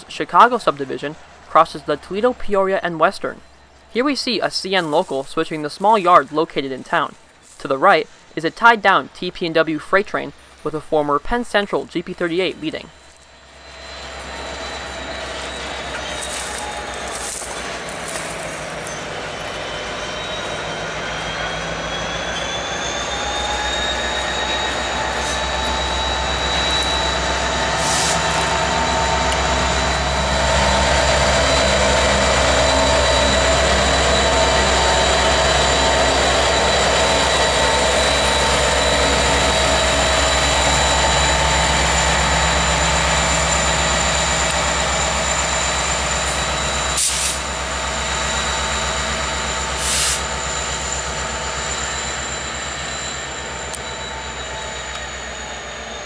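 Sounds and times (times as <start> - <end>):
diesel locomotive engine rumble: 0.0 - 56.0
high whine: 12.1 - 56.0.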